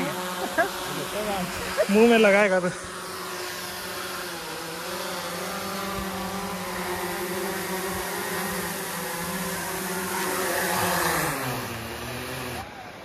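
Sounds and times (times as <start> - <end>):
drone propellers humming: 0.0 - 13.0.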